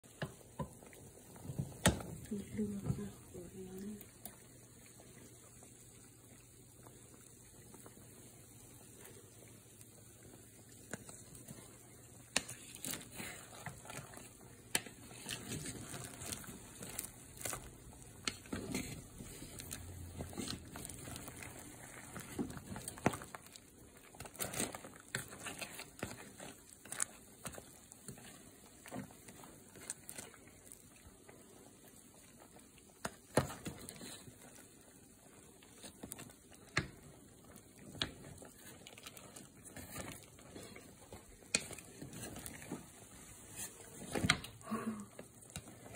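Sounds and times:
pot bubbling at a rolling boil: 0.0s - 45.9s
sharp pops and clicks: 1.6s - 2.2s.

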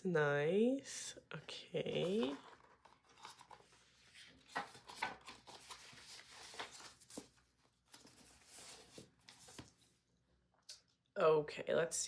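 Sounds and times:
paper and card rustling: 1.8s - 10.0s.

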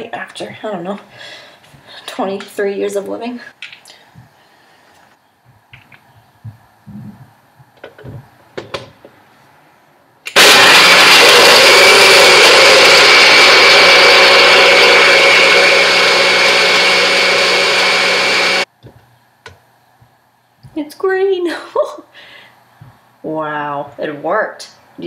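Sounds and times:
blender motor running: 10.3s - 18.7s.

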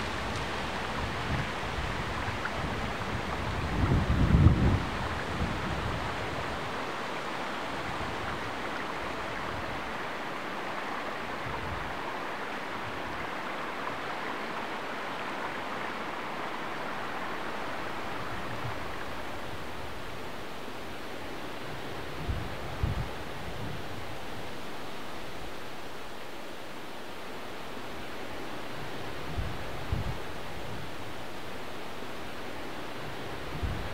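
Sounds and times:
stream running over stones: 0.0s - 21.6s.

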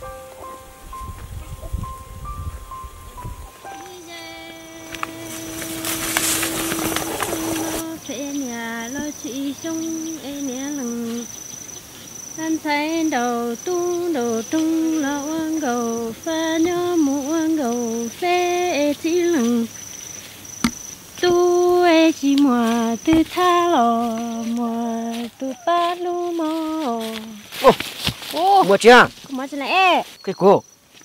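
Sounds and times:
cricket chirping: 0.0s - 31.0s
woman singing slow melody: 3.5s - 11.5s, 12.3s - 19.8s, 21.2s - 27.5s.

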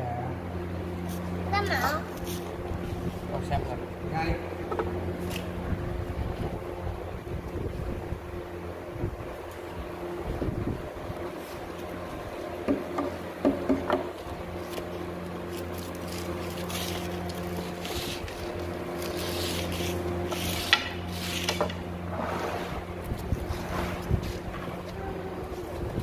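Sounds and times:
machine hum: 0.0s - 26.0s
wood rubbing and scraping: 11.3s - 26.0s
wood knocking on wood: 12.6s - 14.2s.

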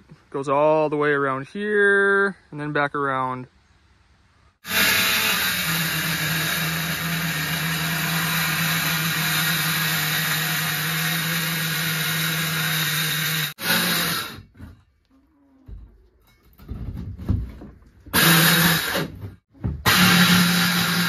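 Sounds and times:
oscillating multi-tool cutting wood: 4.6s - 14.5s, 18.2s - 19.1s, 19.8s - 21.0s.

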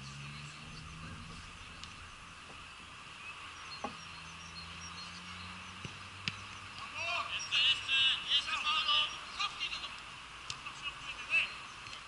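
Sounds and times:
low hum: 0.0s - 6.6s.

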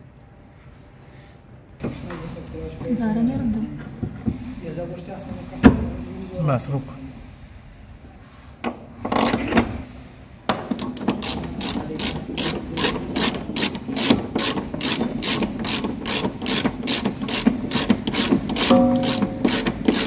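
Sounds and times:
hand ratchet clicking: 10.7s - 20.0s.

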